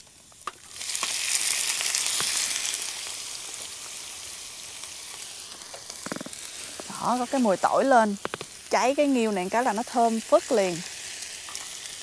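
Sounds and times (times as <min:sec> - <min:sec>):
clams sizzling in hot oil: 0:00.0 - 0:12.0
small pops of frying: 0:00.0 - 0:12.0.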